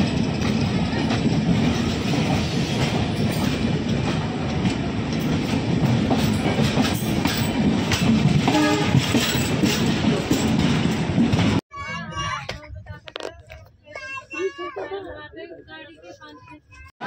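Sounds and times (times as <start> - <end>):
train wheels rumbling and clattering: 0.0 - 14.2
train horn: 8.5 - 9.1.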